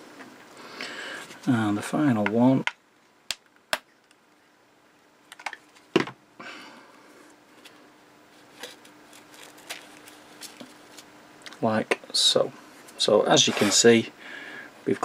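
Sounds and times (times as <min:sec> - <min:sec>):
card rustling: 0:08.5 - 0:11.1.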